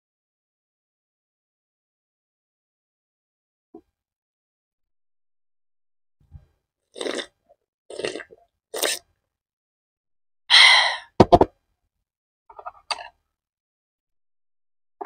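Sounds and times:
gulps of water swallowed: 6.9s - 9.1s
breathy ahh exhale: 10.5s - 11.2s.

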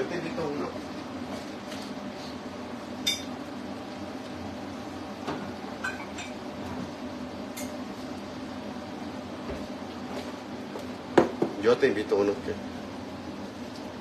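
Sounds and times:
cup and dishes clinking: 5.8s - 6.4s.

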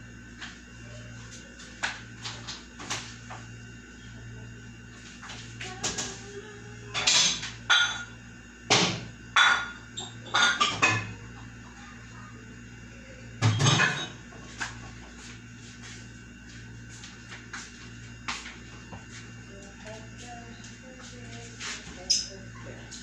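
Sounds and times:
steady low hum: 0.0s - 23.0s
cookware knocks and clatters: 8.7s - 11.1s, 13.4s - 14.2s.

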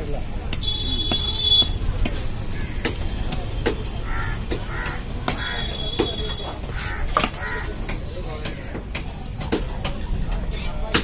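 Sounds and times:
knife chopping fish on wood: 2.0s - 6.2s, 6.8s - 10.1s
crows cawing: 2.5s - 3.0s, 4.0s - 5.8s, 6.7s - 7.8s.

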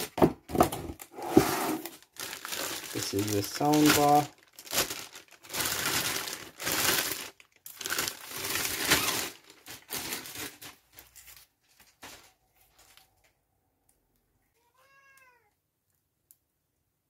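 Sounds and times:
plastic wrap crinkling: 1.8s - 13.3s.

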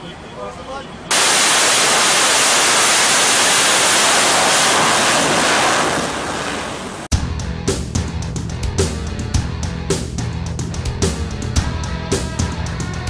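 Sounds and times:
fighter jet roaring: 1.1s - 7.1s
rock music with drums: 7.1s - 13.0s.

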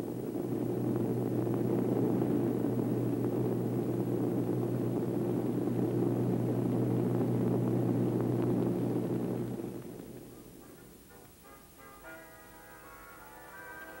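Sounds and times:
propeller airliner engines droning: 0.0s - 10.7s.

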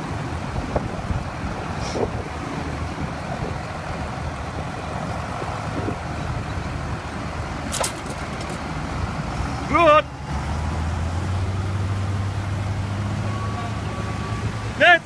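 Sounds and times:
tractor diesel engine under load: 0.0s - 15.0s
sharp clack: 7.7s - 8.7s.

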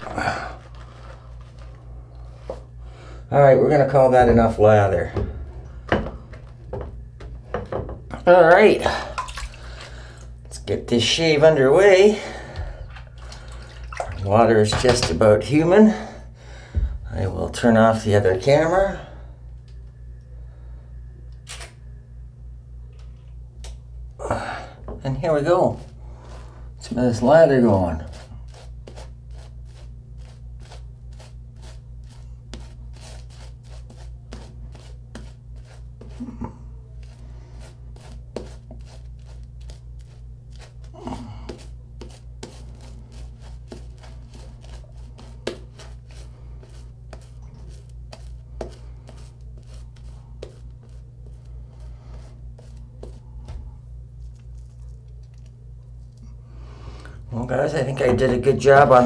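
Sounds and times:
steady low hum: 0.0s - 59.0s
shaving brush scrubbing face: 26.8s - 53.2s.

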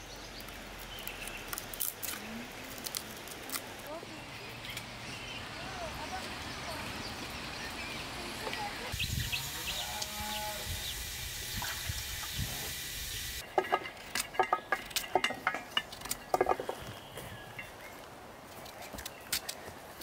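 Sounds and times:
steady hiss: 8.8s - 13.4s.

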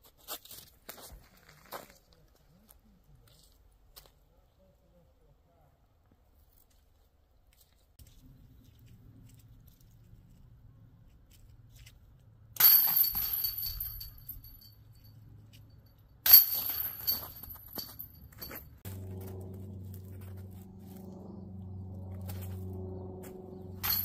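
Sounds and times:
metal chains rattling: 12.6s - 15.5s, 16.2s - 18.8s, 23.5s - 24.0s.

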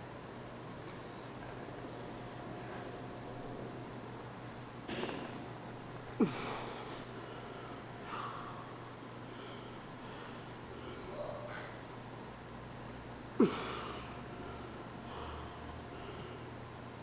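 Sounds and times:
person breathing hard: 6.2s - 11.8s, 13.4s - 16.6s.

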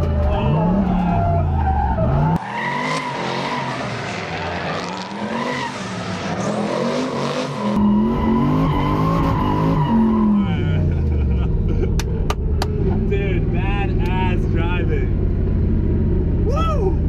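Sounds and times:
car engine revving: 0.0s - 16.6s.

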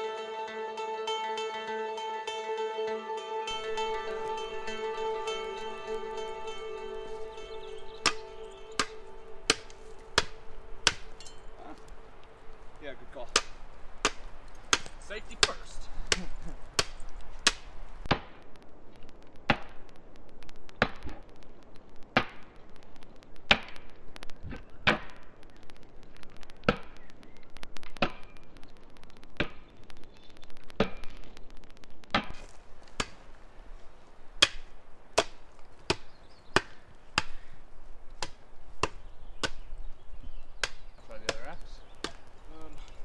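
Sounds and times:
axe chopping wood: 8.8s - 11.1s, 13.3s - 18.3s, 32.1s - 33.3s, 34.4s - 37.5s, 38.2s - 39.7s, 40.6s - 42.4s.

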